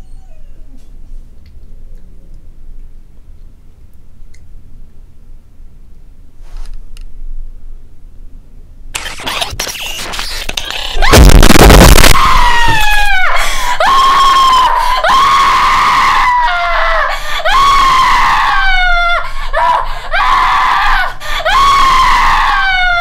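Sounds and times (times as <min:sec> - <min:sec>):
woman screaming: 0:11.0 - 0:23.0.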